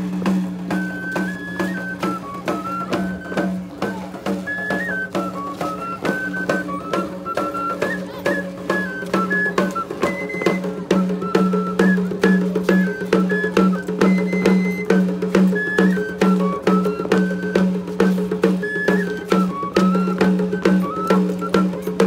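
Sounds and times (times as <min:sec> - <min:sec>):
even drum beat: 0:00.0 - 0:04.4
high flute melody: 0:00.0 - 0:22.0.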